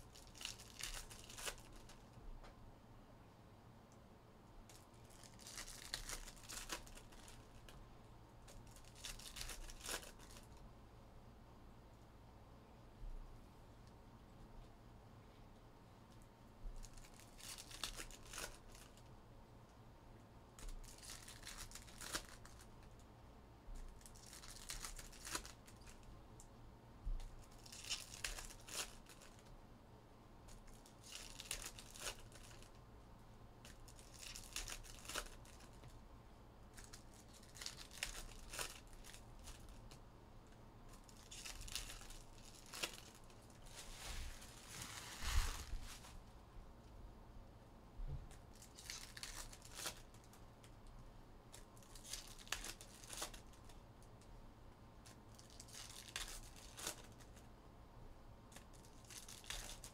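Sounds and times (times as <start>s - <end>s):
card pack wrappers tearing: 0.1s - 2.0s, 5.1s - 7.7s, 8.5s - 10.5s, 16.8s - 19.0s, 20.6s - 22.7s, 24.0s - 26.0s, 27.5s - 29.5s, 31.0s - 32.7s, 33.6s - 35.7s, 36.8s - 40.0s, 41.0s - 43.5s, 48.6s - 50.4s, 51.8s - 53.6s, 55.4s - 57.3s, 58.6s - 59.9s.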